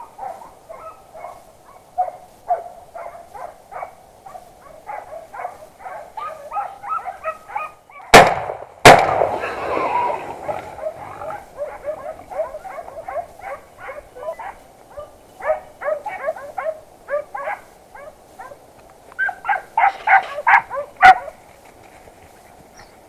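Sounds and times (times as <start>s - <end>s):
hunting dogs barking: 0.0s - 8.2s, 9.2s - 21.4s
sharp crack: 8.1s - 11.0s.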